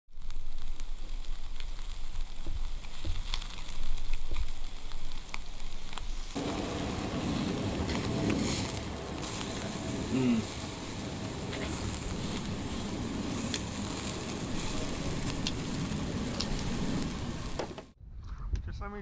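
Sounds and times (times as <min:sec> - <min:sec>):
low hiss: 0:00.1 - 0:17.9
charcoal crackling: 0:00.1 - 0:18.0
loud rushing hiss: 0:06.1 - 0:18.0.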